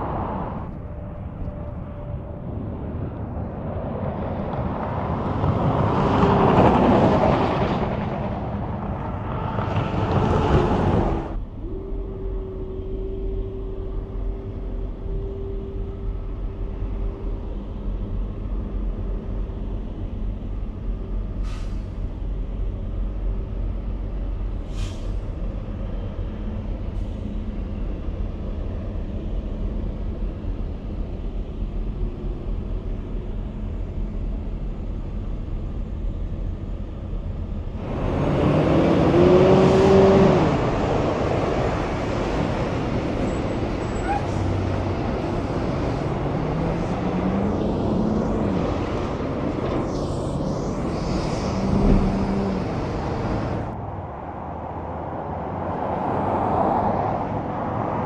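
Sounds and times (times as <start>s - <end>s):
truck passing by: 0.0s - 20.2s, 37.6s - 58.0s
truck engines and road noise: 0.0s - 58.0s.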